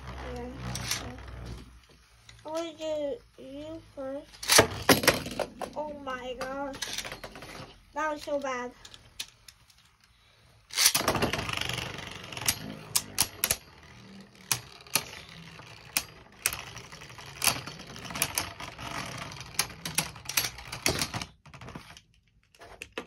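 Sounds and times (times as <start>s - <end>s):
spinning top launched: 10.7s - 18.2s.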